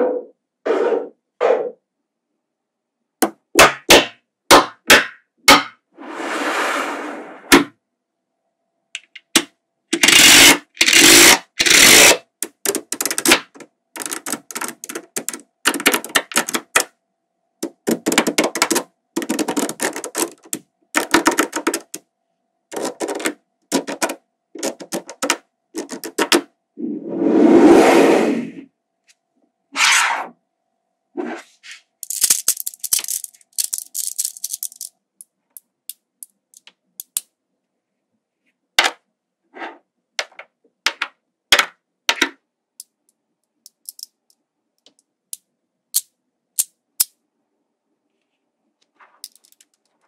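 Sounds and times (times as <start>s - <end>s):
rattling slide of balls: 6.0s - 7.5s
magnetic balls clicking together: 9.0s - 16.9s, 17.6s - 22.0s, 22.7s - 26.5s, 32.0s - 37.3s, 40.9s - 47.2s, 49.2s - 50.0s.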